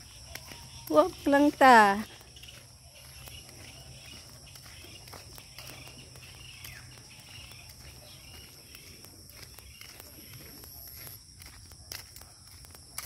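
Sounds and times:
bird chirps: 0.0 - 10.6
footsteps on gravel: 0.0 - 13.0
high-pitched insect buzz: 0.5 - 9.0.

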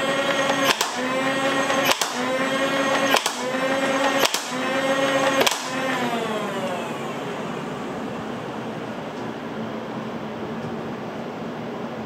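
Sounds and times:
blaster firing clicks: 0.0 - 6.3
flywheel motors whining: 0.0 - 9.6.

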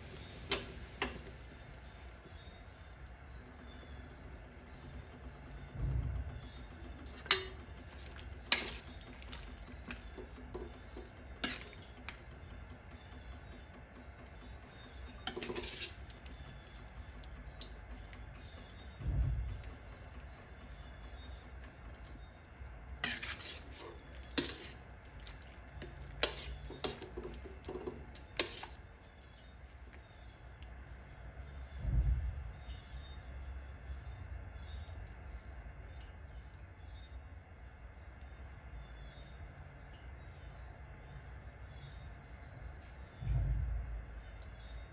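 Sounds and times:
low steady hum: 0.0 - 44.9
liquid stirring: 7.1 - 11.9, 14.7 - 16.7, 23.0 - 28.9
ladle scraping pan: 8.5 - 8.9, 15.3 - 16.2, 23.0 - 24.8, 26.2 - 28.8.

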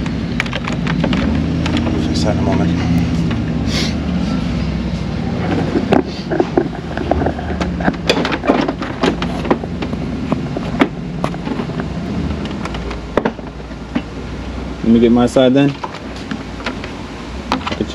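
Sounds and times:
steady low hum: 0.0 - 17.9
plastic grille clicks and knocks: 7.2 - 14.1.

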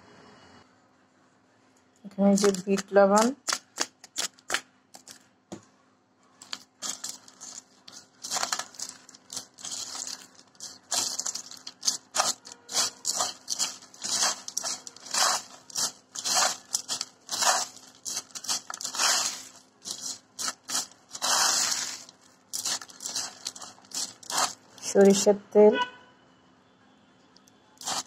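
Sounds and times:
hand mixing crunchy food in bowl: 2.2 - 5.2, 6.4 - 25.3, 27.8 - 28.0.

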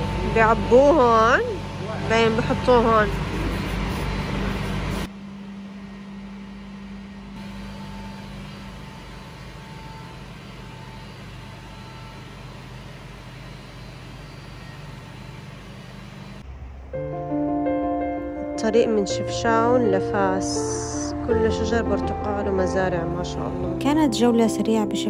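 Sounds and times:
oil separator machine humming: 0.0 - 17.3.

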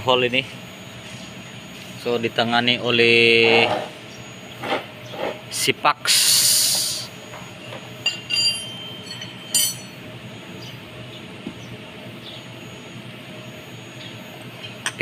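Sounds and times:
faint steady hum: 0.0 - 15.0
light metallic clinks: 7.6 - 10.0.

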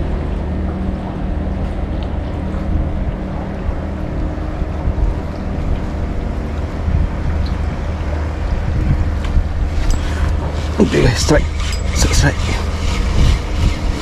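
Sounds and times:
steady low hum: 0.0 - 14.0
wind on microphone: 0.0 - 14.0.

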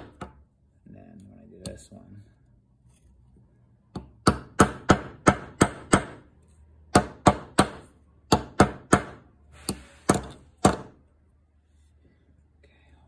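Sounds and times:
hammer striking nails: 3.9 - 6.3, 6.9 - 11.0.

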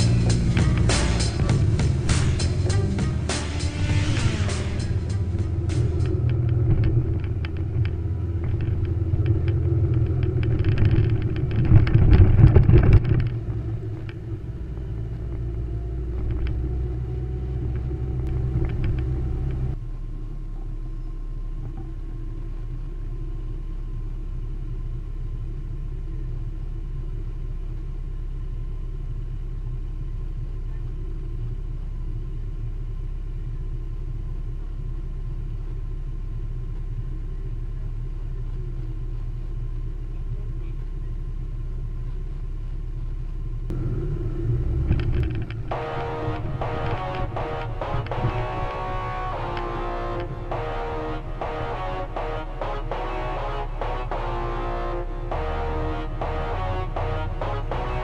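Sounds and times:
motorcycle engine running: 0.0 - 20.9, 21.5 - 58.0
wind and road noise: 0.0 - 20.9, 38.4 - 58.0.

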